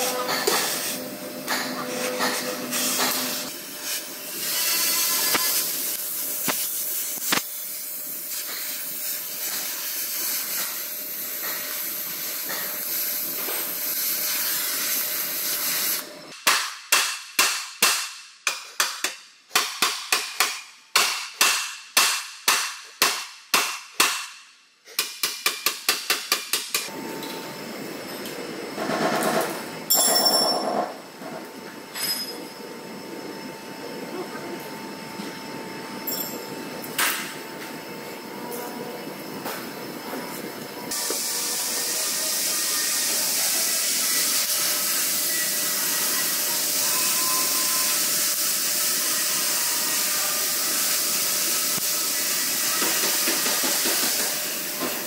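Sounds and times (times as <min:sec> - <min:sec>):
gas torch hissing: 0:02.6 - 0:16.1, 0:40.9 - 0:54.9.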